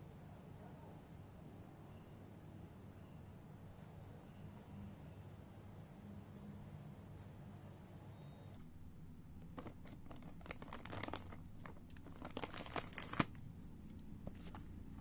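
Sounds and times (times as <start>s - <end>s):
crinkling and rustling: 8.5s - 15.0s
small crackling clicks: 9.4s - 14.6s.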